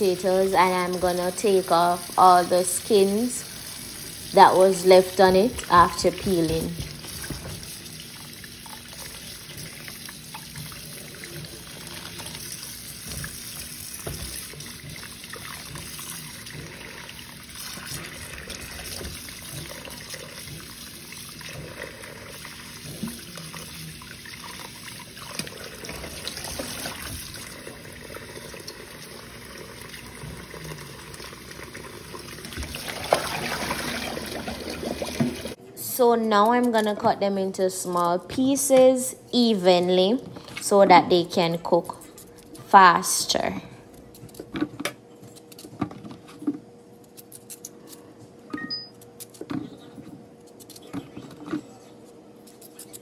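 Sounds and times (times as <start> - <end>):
water splashing in sink: 0.0 - 35.6.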